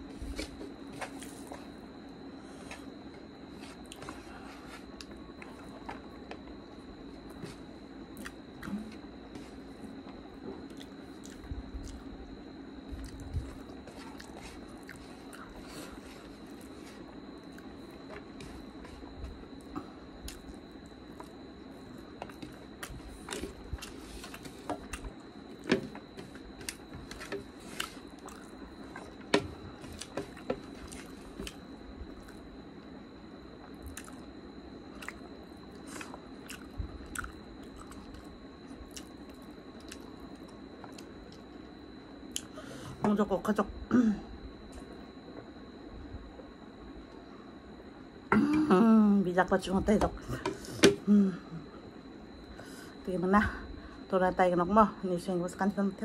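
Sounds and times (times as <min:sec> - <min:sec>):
chewing with wet mouth clicks: 0:10.7 - 0:12.0, 0:33.8 - 0:34.2, 0:35.0 - 0:35.2, 0:35.8 - 0:38.3, 0:38.9 - 0:40.1.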